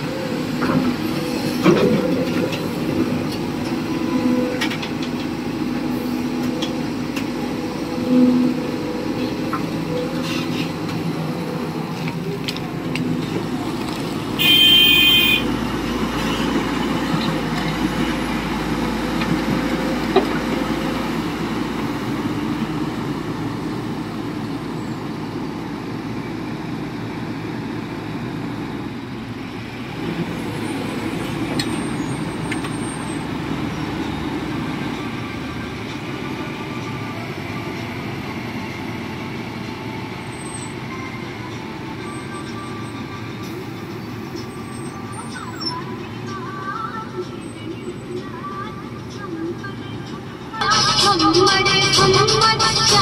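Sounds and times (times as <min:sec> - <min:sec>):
excavator diesel engine running: 0:00.0 - 0:53.0
loud horn toot: 0:14.4 - 0:15.5.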